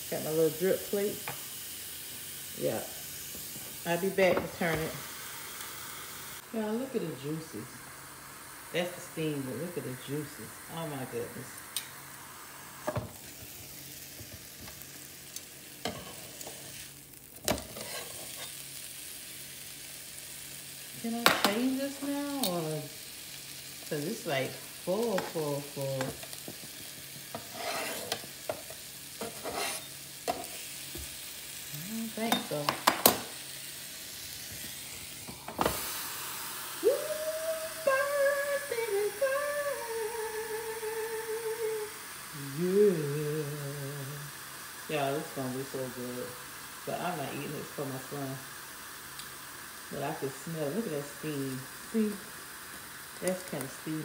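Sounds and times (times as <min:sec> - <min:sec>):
chicken sizzling on a grill: 0:00.0 - 0:54.0
woman humming: 0:31.7 - 0:32.2, 0:36.8 - 0:44.4.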